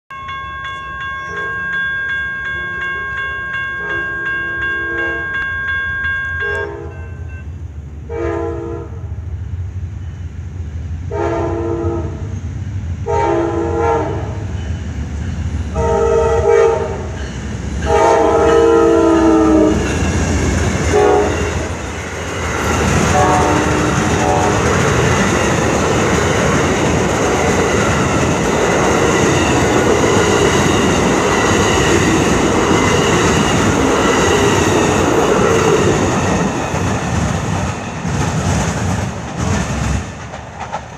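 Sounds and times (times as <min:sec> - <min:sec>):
crossing bell ringing: 0:00.1 - 0:07.7, 0:14.3 - 0:37.0
train rumble and wheel clatter: 0:00.2 - 0:40.9
locomotive air horn blasts: 0:03.8 - 0:05.5, 0:06.3 - 0:07.0, 0:08.1 - 0:09.0, 0:11.1 - 0:12.3, 0:13.1 - 0:14.4, 0:15.8 - 0:17.1, 0:17.8 - 0:19.9, 0:20.9 - 0:21.8, 0:23.0 - 0:24.8.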